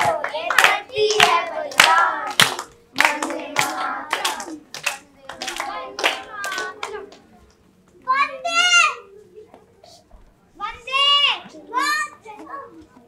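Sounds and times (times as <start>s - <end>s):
children singing: 0.0s - 7.2s
children clapping: 0.0s - 7.3s.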